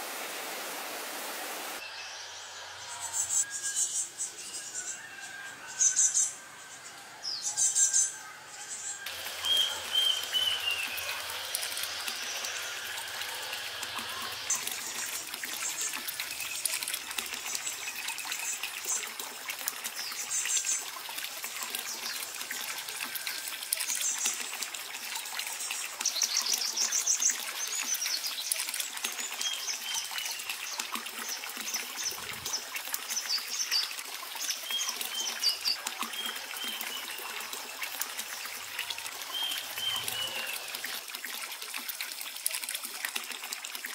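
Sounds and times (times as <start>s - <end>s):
water pouring into pool: 9.0s - 43.9s
birds chirping: 9.2s - 12.7s.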